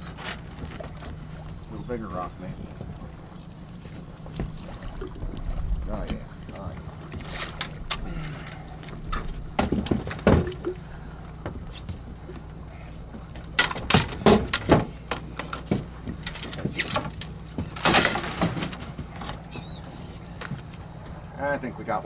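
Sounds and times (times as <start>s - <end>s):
low boat hum: 0.0s - 22.0s
landing net knocks and clatter: 17.8s - 19.3s.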